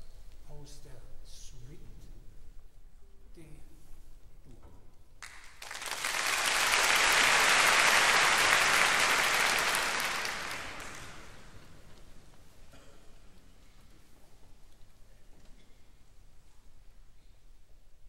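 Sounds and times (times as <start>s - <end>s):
audience applauding: 5.2s - 11.8s.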